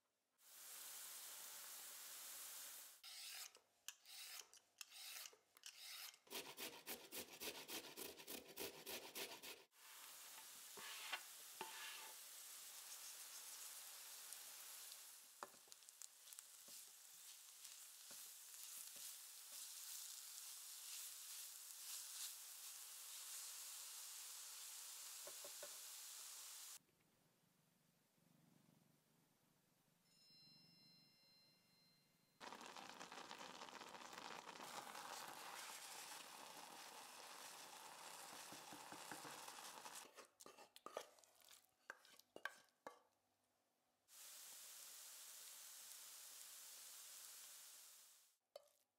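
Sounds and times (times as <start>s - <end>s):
vegetables sizzling in oil: 0.4s - 3.4s, 9.7s - 26.8s, 32.4s - 42.1s, 44.1s - 48.4s
spoon knocks and scrapes: 10.4s - 12.2s, 38.5s - 43.0s
thick food bubbling and stirred: 32.4s - 43.0s.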